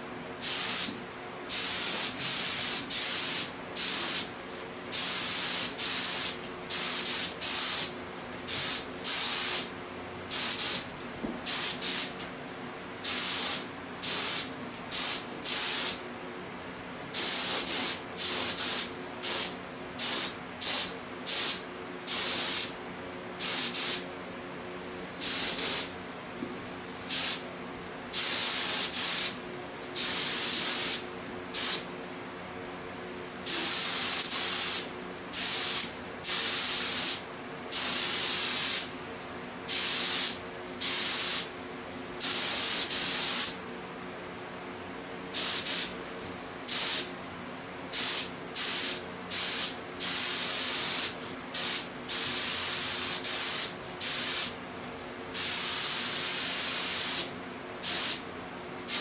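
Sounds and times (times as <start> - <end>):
spray gun hissing: 1.5 - 4.3, 4.9 - 7.9, 11.5 - 12.2, 13.0 - 16.0, 25.2 - 25.9, 30.0 - 31.9, 45.3 - 45.9, 46.7 - 47.1, 47.9 - 54.6, 55.4 - 58.3.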